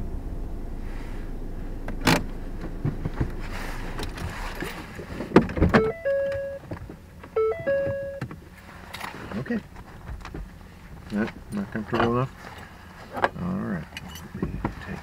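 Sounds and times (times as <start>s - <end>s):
car warning chime: 5.7s - 8.3s
clicks and knocks in car: 14.2s - 15.0s.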